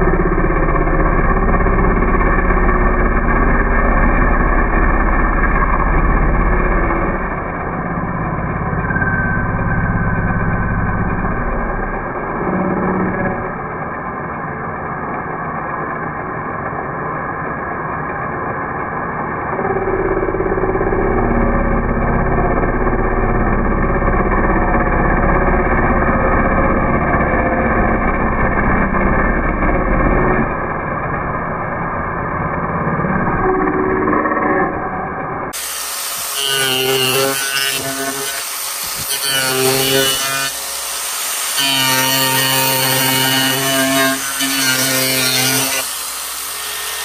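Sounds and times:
angle grinder cutting wood: 32.7s - 47.0s.

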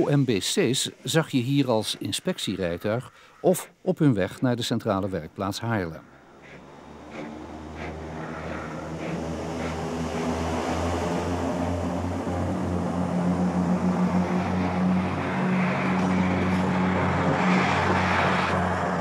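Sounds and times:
railcar engine drone: 5.2s - 19.0s.

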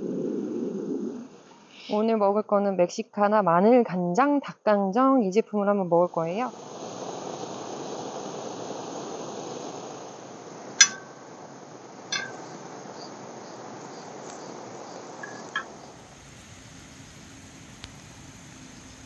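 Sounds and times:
low hiss: 5.9s - 19.0s
metallic clinks of cookware: 10.8s - 11.2s, 12.1s - 12.4s, 15.2s - 15.7s
insect chirping: 12.1s - 19.0s.

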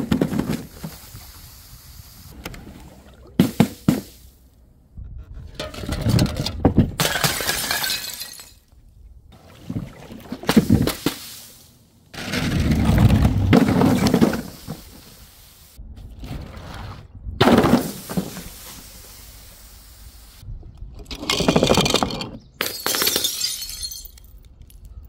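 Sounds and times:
glass bottles smashing: 7.0s - 8.6s, 21.7s - 24.4s
glass shards clinking: 22.6s - 24.3s.

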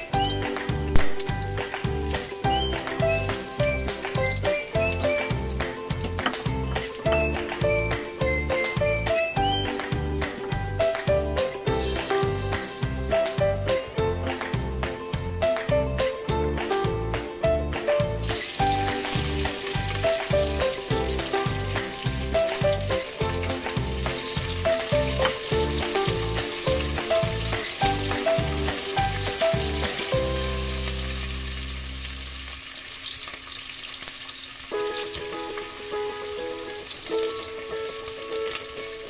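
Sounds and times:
onion and garlic sizzling in oil: 0.0s - 11.0s, 18.0s - 39.0s
background music with steady beat: 0.0s - 31.0s.

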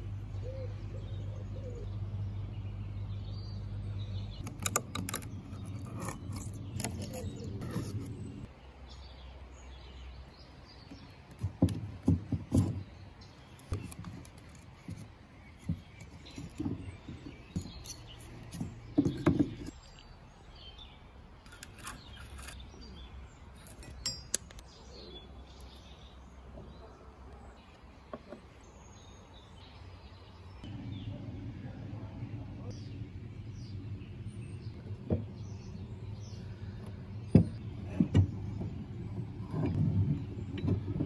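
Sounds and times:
birds chirping faintly: 0.0s - 41.0s
wooden parts knocking on workbench: 18.5s - 19.7s.

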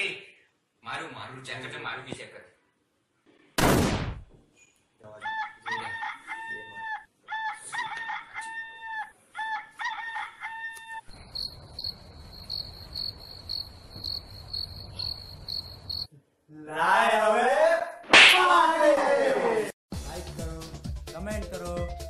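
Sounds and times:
rooster crowing: 5.2s - 11.9s
crickets chirping: 11.0s - 16.1s.

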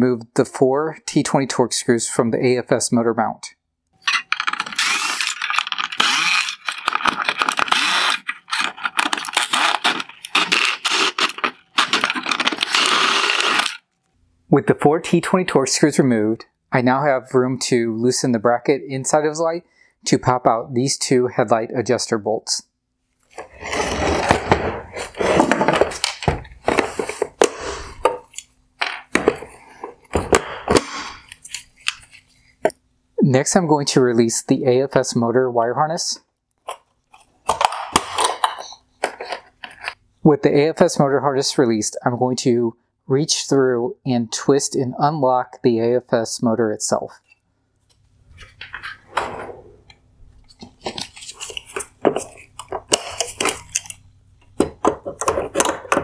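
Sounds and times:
plastic scraping and rattling: 4.0s - 13.8s, 23.2s - 32.3s, 36.6s - 40.0s, 48.3s - 56.0s
hard plastic clicking and scraping: 48.4s - 56.0s.

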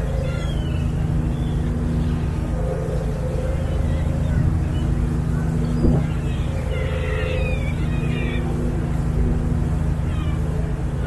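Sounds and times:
ferry engine droning: 0.0s - 11.0s.

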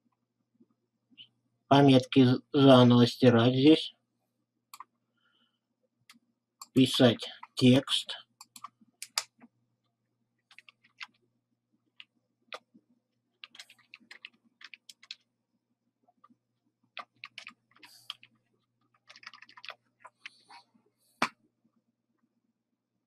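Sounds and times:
computer keyboard typing: 8.4s - 9.5s, 10.5s - 11.2s, 13.4s - 15.3s, 16.2s - 20.4s.

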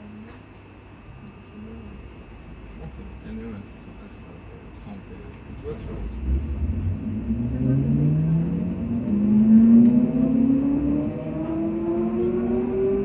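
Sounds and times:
electric train motors whining: 5.6s - 13.0s.

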